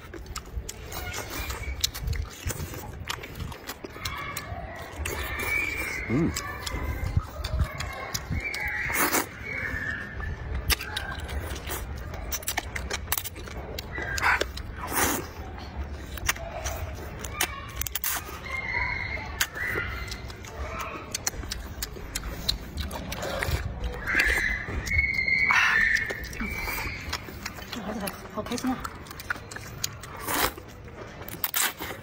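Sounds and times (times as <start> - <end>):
noodles being slurped: 0.0 - 32.0
wet chewing smacks: 0.0 - 32.0.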